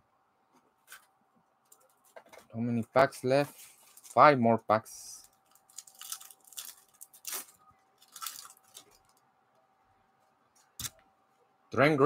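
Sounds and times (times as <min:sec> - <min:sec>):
foil wrapper crinkling: 0:05.2 - 0:09.2.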